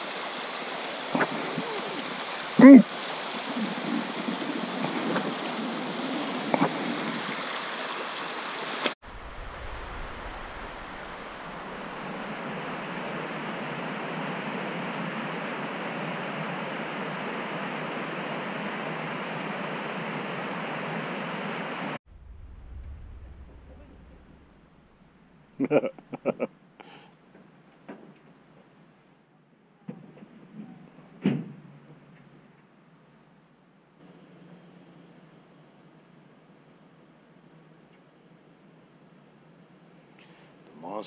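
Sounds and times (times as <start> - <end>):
creek rushing over rocks: 0.0 - 22.0
quiet low rumble: 9.0 - 12.4, 22.0 - 26.4.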